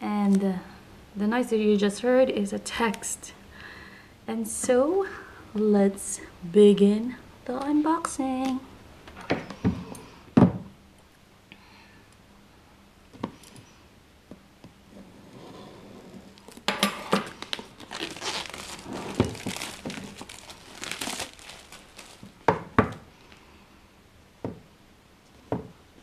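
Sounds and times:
plastic wrap crinkling: 16.3s - 23.0s.

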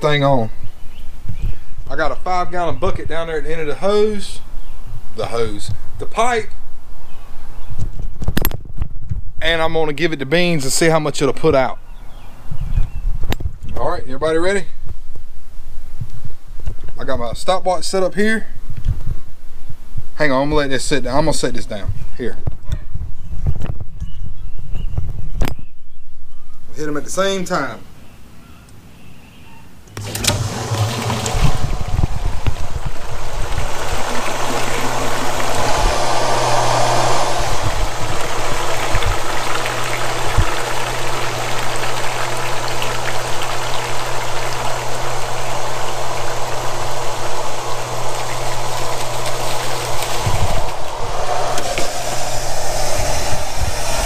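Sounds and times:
water pump humming: 30.0s - 54.0s
water rushing into bucket: 30.0s - 54.0s.

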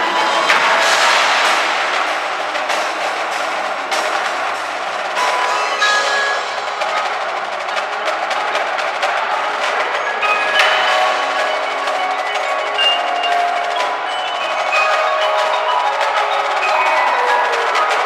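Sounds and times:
mallet keyboards ringing: 5.1s - 18.0s.

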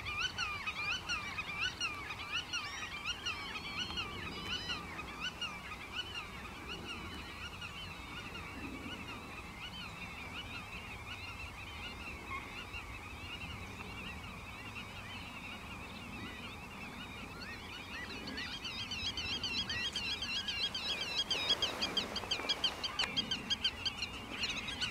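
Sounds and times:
birds chattering: 17.0s - 24.9s.

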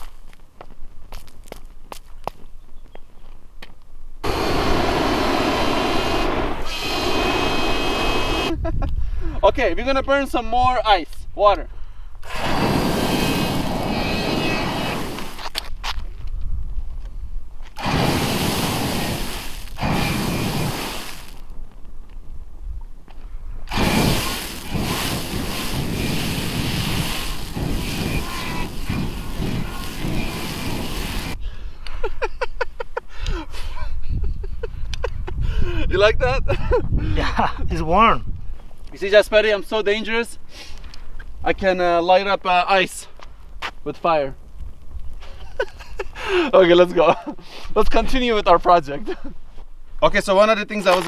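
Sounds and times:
flamethrower rushing blast: 4.2s - 8.6s, 12.2s - 15.6s, 17.8s - 21.5s, 23.6s - 31.4s
high steady whine: 4.2s - 8.6s, 12.2s - 15.6s, 17.8s - 21.4s, 23.7s - 31.4s.

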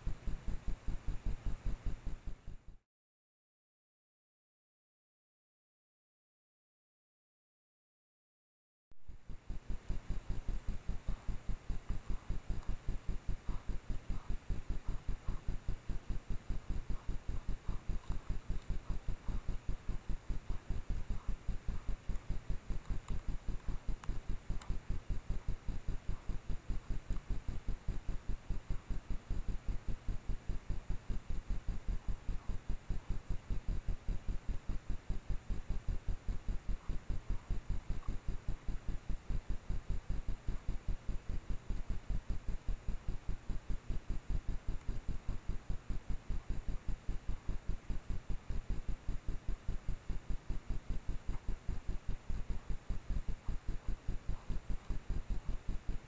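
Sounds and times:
steady hiss: 9.0s - 56.0s
rapid low thumping: 9.2s - 56.0s.

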